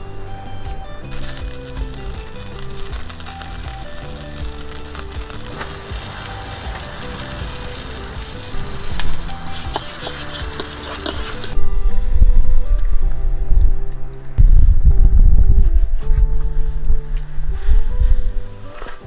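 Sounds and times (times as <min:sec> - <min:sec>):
background music: 0:00.0 - 0:19.0
steak sizzling on a grill: 0:01.1 - 0:11.6.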